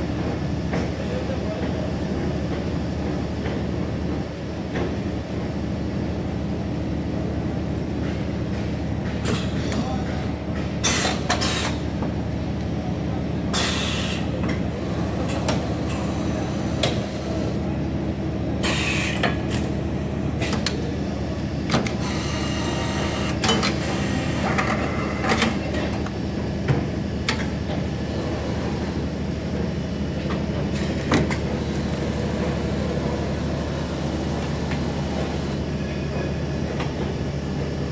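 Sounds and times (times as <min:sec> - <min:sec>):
machine clicks and clunks: 0:23.3 - 0:23.8.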